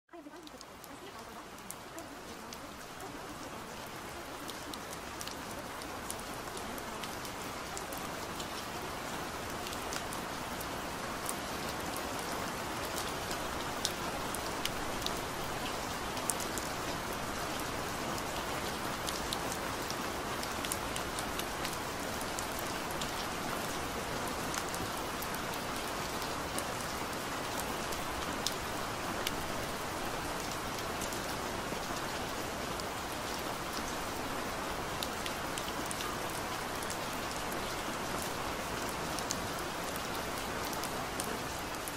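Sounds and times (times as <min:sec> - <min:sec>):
raindrops ticking: 0:00.1 - 0:08.7
steady rain hiss: 0:00.1 - 0:41.9.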